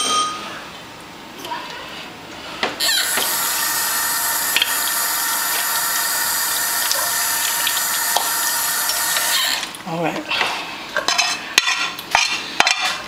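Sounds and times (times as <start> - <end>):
kitchen tap running: 2.8 - 9.8.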